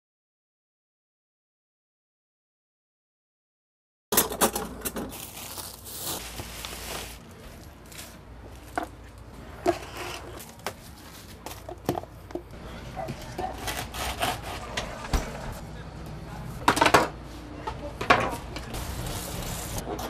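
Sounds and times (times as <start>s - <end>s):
rustling and crinkling: 4.5s - 14.8s.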